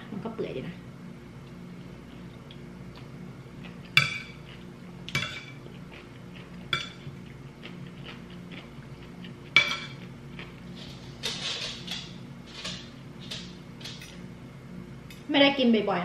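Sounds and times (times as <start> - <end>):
cutlery clinking on plate: 9.6 - 10.0.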